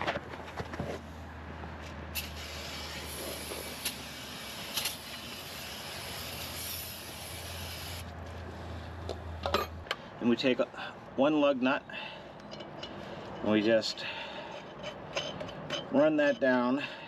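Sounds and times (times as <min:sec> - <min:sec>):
aerosol spray hissing: 0:02.2 - 0:08.1.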